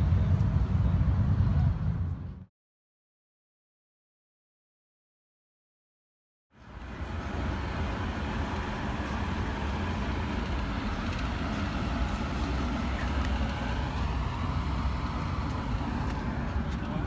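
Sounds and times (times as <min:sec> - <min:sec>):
traffic engine rumble: 0:00.0 - 0:02.5, 0:06.5 - 0:17.0.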